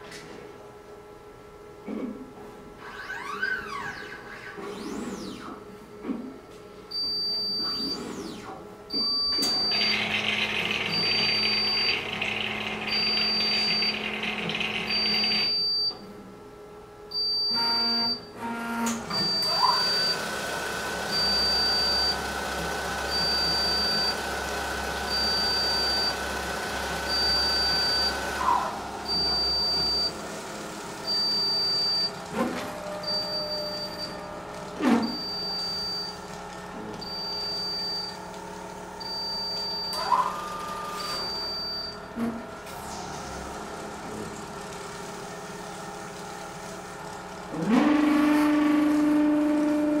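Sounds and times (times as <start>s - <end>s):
stepper motor whine: 18.8s - 34.3s.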